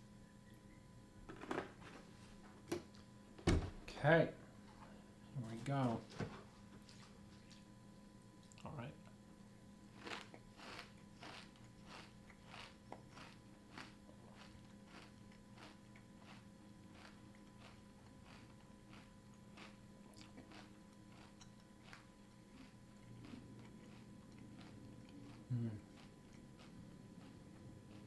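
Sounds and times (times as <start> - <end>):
chewing crunchy cereal: 10.0 - 28.0.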